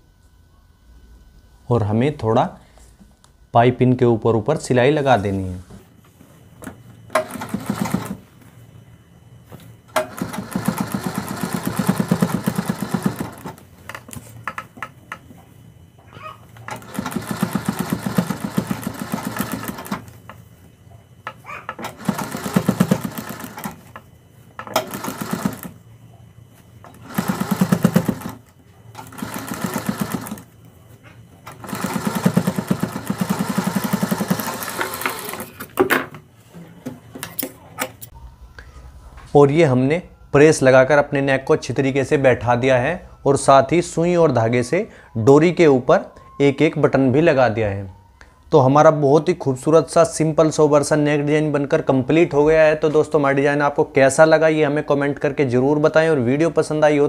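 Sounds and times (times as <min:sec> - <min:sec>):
sewing machine stitching: 0:07.1 - 0:08.2, 0:09.9 - 0:13.6, 0:16.7 - 0:20.1, 0:21.7 - 0:24.0, 0:24.6 - 0:25.8, 0:26.9 - 0:30.5, 0:31.5 - 0:35.6.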